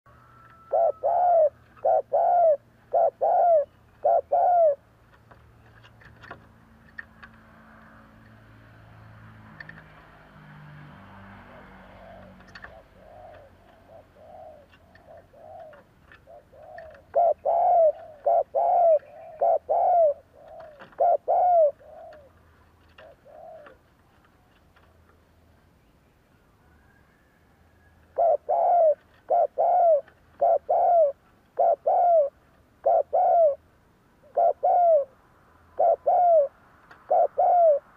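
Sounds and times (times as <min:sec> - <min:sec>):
dove cooing: 0:00.1 - 0:04.9, 0:11.5 - 0:23.9, 0:28.1 - 0:33.6, 0:34.2 - 0:35.2, 0:35.8 - 0:37.9.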